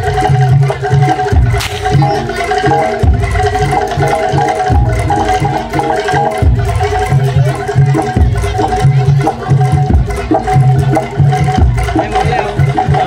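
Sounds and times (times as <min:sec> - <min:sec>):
hand drums beating: 0:00.0 - 0:13.0
ringing metal percussion: 0:00.0 - 0:13.0.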